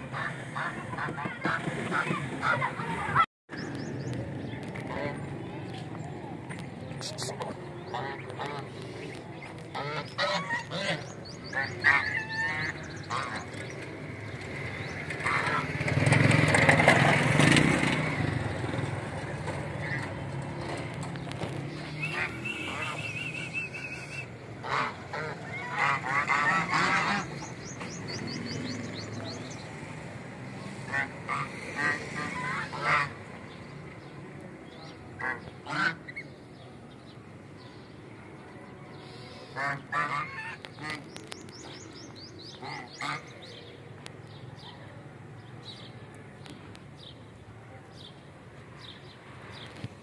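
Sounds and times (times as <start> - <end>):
geese honking: 0.0 - 3.2, 7.1 - 13.7, 14.8 - 15.8, 21.4 - 27.5, 30.8 - 33.3, 35.1 - 36.3, 39.0 - 41.2, 42.5 - 43.4.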